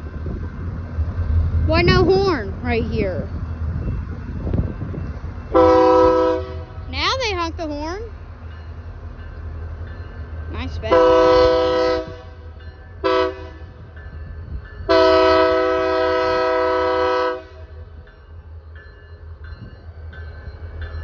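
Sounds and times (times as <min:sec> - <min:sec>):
locomotive air horn: 0:05.5 - 0:06.8, 0:10.9 - 0:13.8, 0:14.9 - 0:17.8.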